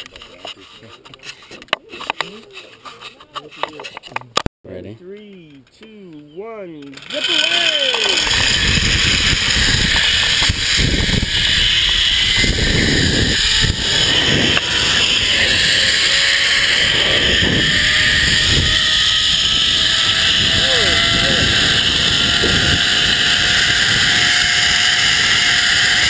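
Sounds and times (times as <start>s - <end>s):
zip line trolley on steel cable: 6.9s - 26.0s
wind buffeting microphone: 8.2s - 26.0s.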